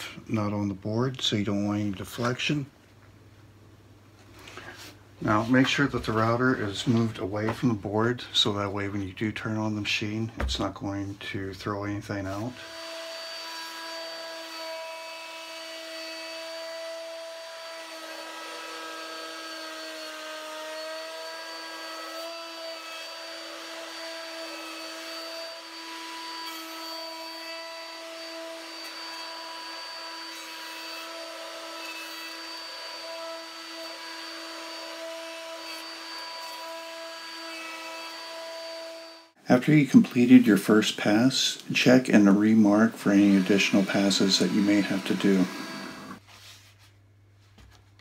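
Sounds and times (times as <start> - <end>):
router cutting wood: 12.2 - 39.4, 40.1 - 46.2.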